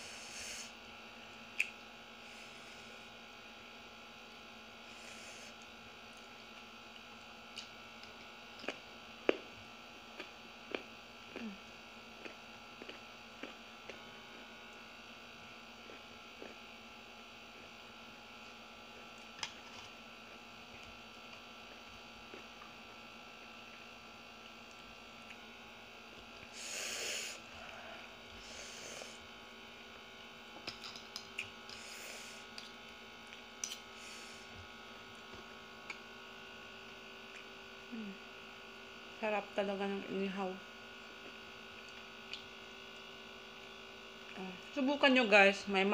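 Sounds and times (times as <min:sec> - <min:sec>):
electrical hum: 0:00.0 - 0:45.9
mouth clicks and smacks: 0:01.6 - 0:01.8.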